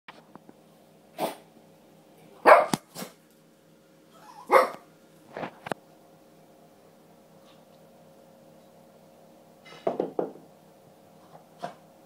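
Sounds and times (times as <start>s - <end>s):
small dog barking: 2.4s - 3.1s, 4.2s - 4.9s.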